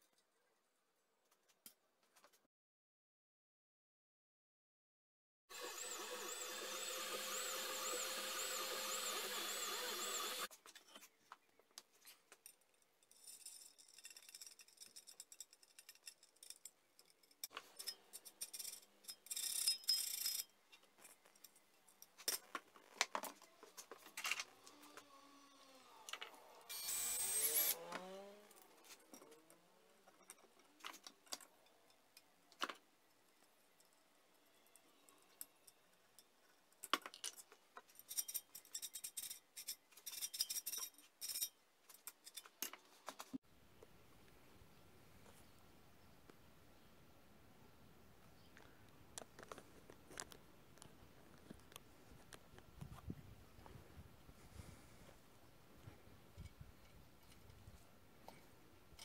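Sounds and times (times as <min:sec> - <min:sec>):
stepper motors whining: 0:05.5 - 0:10.5, 0:23.4 - 0:29.6
metal parts clicking and knocking: 0:12.3 - 0:24.5, 0:35.0 - 0:43.2.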